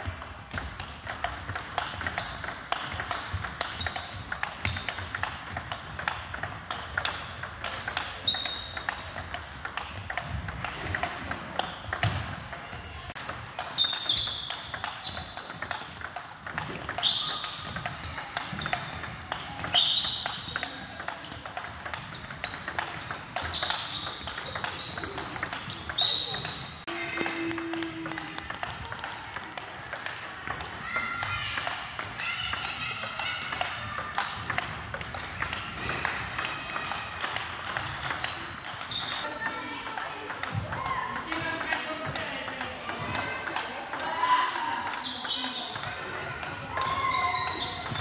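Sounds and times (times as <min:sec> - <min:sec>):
table tennis ball clicking: 0:00.2 - 0:48.0
sports shoes squeaking on floor: 0:02.0 - 0:05.2, 0:07.1 - 0:09.2, 0:13.6 - 0:15.9, 0:16.7 - 0:28.4, 0:37.8 - 0:39.4, 0:44.9 - 0:46.0, 0:46.8 - 0:48.0.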